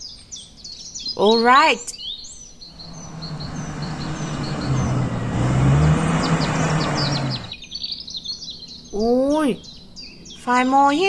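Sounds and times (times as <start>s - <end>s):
small birds chirping: 0.0s - 11.0s
road noise: 2.7s - 7.6s
vehicle engine hum: 2.8s - 7.6s.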